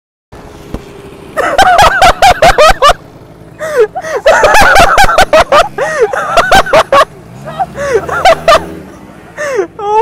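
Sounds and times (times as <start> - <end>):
man laughing hard: 1.4 - 3.0, 3.6 - 8.8.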